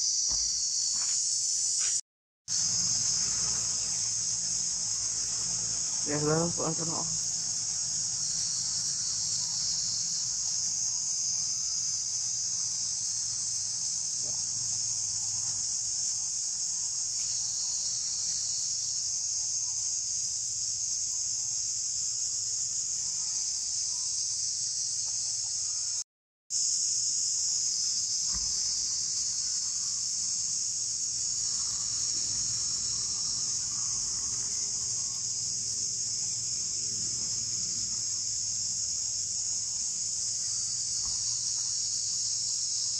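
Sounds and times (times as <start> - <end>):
high-pitched insect chorus: 0.0 - 42.9.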